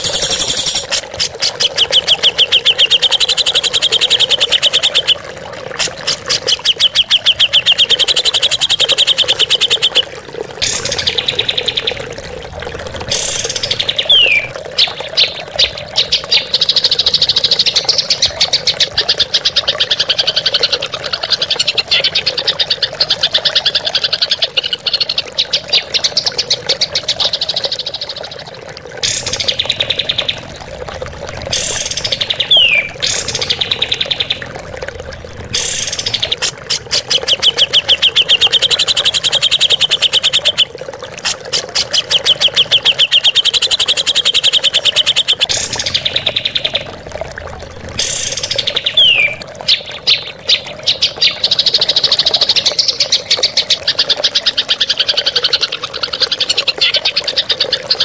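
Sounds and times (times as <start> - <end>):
birds rattling trills: 0.0 - 10.0, 10.6 - 20.8, 29.0 - 53.6.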